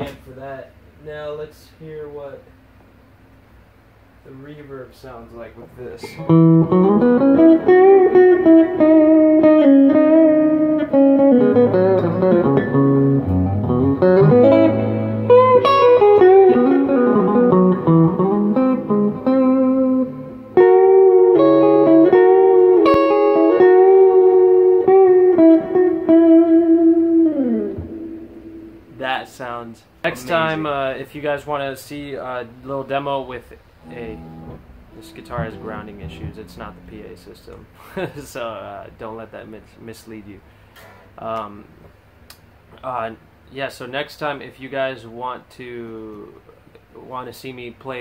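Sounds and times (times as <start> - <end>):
electric guitar with reverb: 6.0 - 28.9, 33.8 - 37.8.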